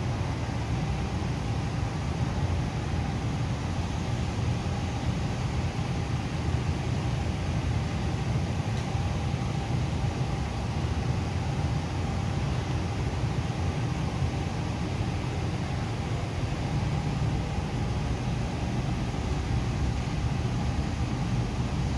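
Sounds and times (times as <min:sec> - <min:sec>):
faint steady hum: 0:00.0 - 0:21.9
low rumbling background noise: 0:00.0 - 0:21.9.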